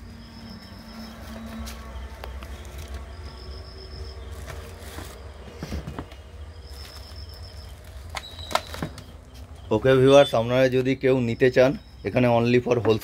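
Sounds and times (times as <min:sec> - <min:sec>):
plastic wrap rustling and clicking: 0:04.3 - 0:09.5.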